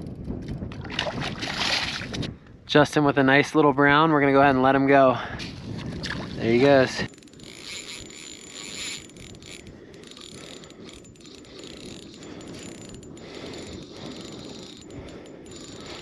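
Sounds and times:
spinning reel being cranked: 0:06.4 - 0:16.0.

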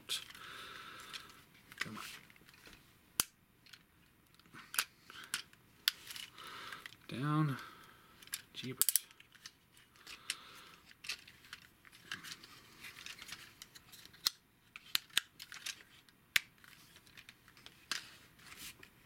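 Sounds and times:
plastic toy parts snapping: 0:08.2 - 0:09.5, 0:13.1 - 0:17.3
plastic toy parts clicking: 0:08.2 - 0:12.4, 0:13.0 - 0:18.1.

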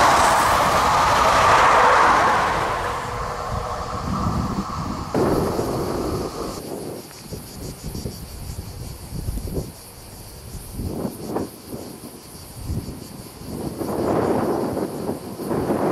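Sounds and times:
train rumbling past: 0:00.0 - 0:06.6
cicadas buzzing: 0:00.0 - 0:15.8
wind buffeting microphone: 0:00.0 - 0:15.9.

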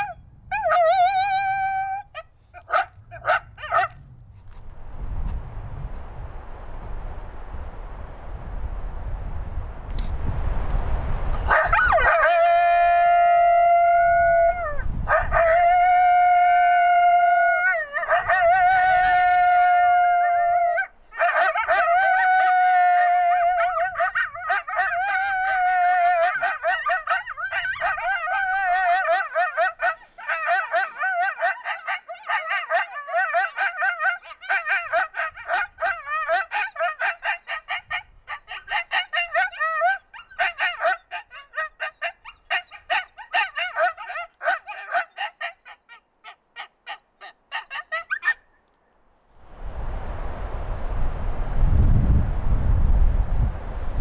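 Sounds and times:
coyote howls: 0:00.0 - 0:03.9, 0:11.5 - 0:48.4
coyote yips: 0:29.0 - 0:48.5.

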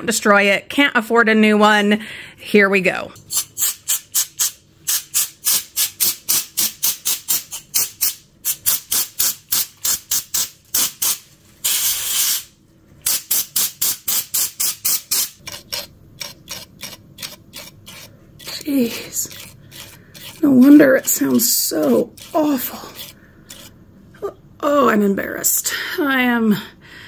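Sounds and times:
compressed air spraying: 0:03.3 - 0:15.4.

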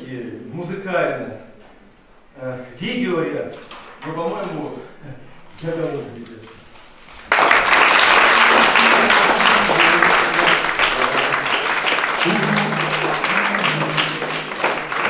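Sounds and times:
audience applauding: 0:07.0 - 0:15.0
music playing: 0:12.2 - 0:15.0.

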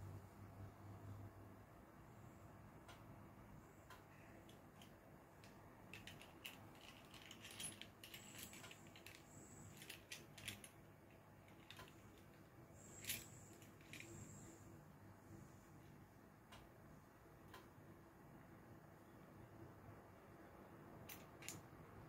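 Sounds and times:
faint clicks and rattles: 0:03.8 - 0:14.5.

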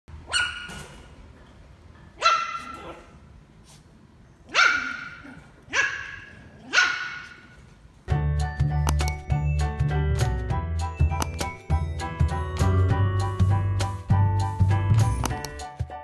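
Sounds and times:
puppy barking: 0:00.3 - 0:00.9, 0:02.2 - 0:03.2, 0:04.5 - 0:07.4
music: 0:08.1 - 0:16.0.

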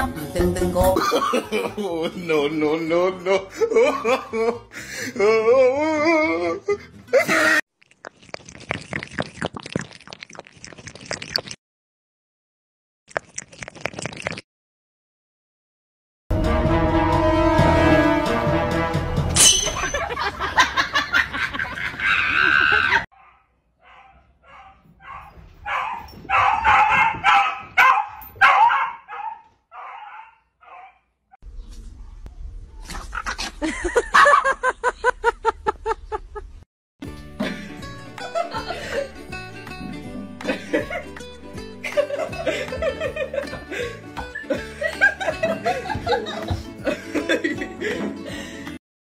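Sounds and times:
kitten lapping water: 0:07.8 - 0:11.6, 0:13.1 - 0:14.4
dog barking: 0:23.2 - 0:31.1.

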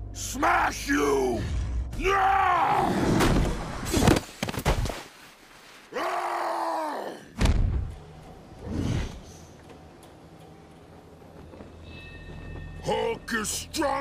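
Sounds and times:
heavy fight thumps and impacts: 0:07.4 - 0:07.9.

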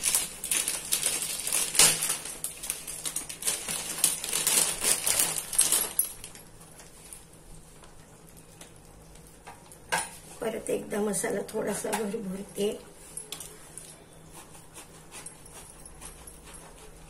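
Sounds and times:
plastic packet crinkling: 0:00.0 - 0:07.1.

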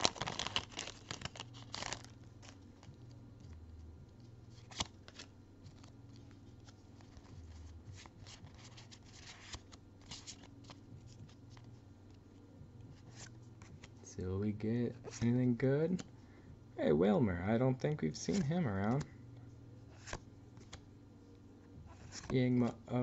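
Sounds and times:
foil wrapper crinkling: 0:00.0 - 0:02.9
cards rustling and ticking: 0:00.0 - 0:16.1, 0:17.7 - 0:19.2, 0:19.8 - 0:20.8, 0:21.8 - 0:23.0.

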